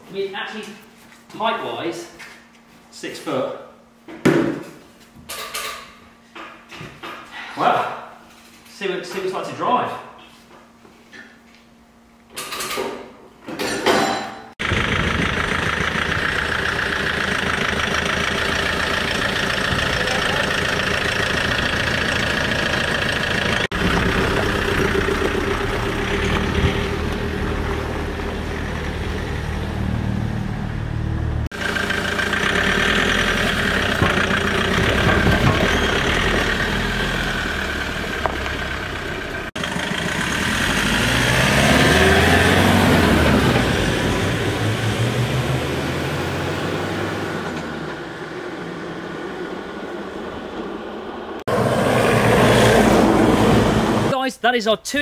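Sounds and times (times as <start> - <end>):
off-road vehicle engine driving: 14.6 - 54.2.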